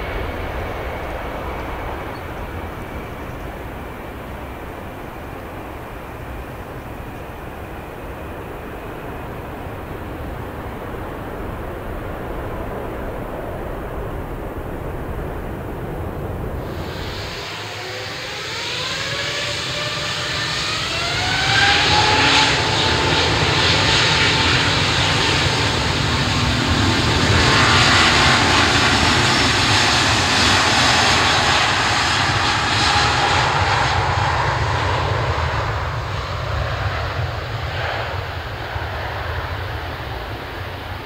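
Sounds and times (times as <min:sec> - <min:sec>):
jet engines roaring: 0:00.0 - 0:41.0.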